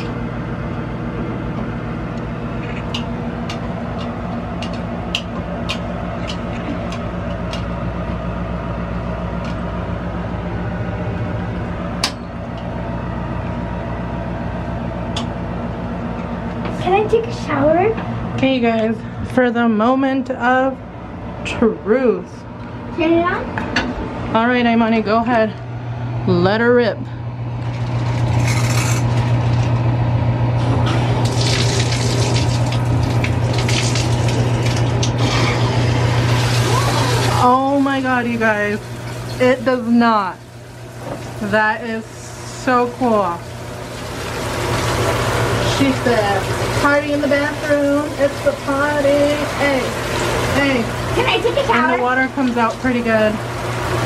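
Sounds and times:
low mechanical hum: 0.0 - 54.0
shower water running onto tile: 30.8 - 54.0.

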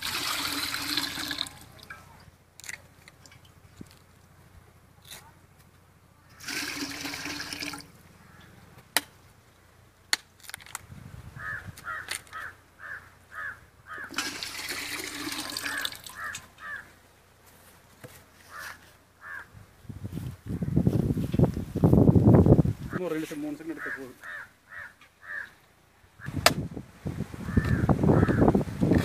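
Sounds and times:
water pouring into metal pot: 0.0 - 1.7, 6.4 - 7.9, 14.1 - 16.2.

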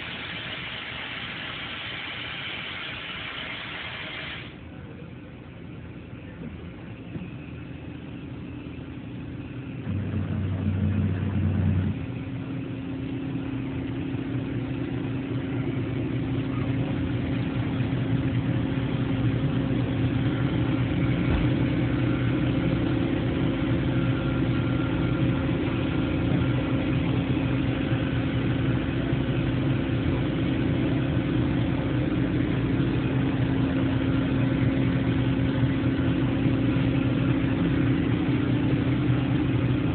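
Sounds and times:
low machine rumble: 0.0 - 39.9
machine hum with held tone: 0.0 - 39.9.

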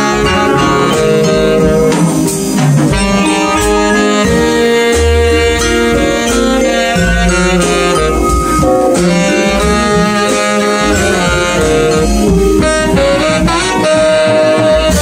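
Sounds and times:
jazz combo playing: 0.0 - 15.0
saxophone melody: 0.0 - 15.0.

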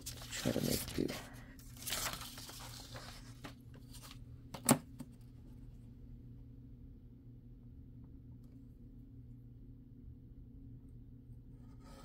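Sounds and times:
paper rustling: 0.0 - 4.2.

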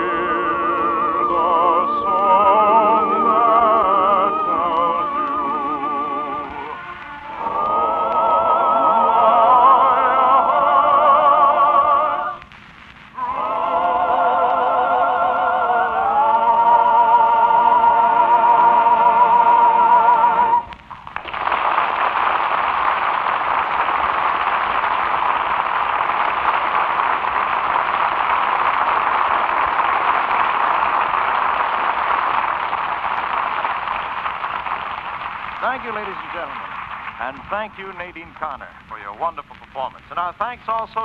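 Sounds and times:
operetta singing with vibrato: 0.0 - 12.4, 13.2 - 20.8
audience applause: 1.3 - 12.4, 17.6 - 38.6.

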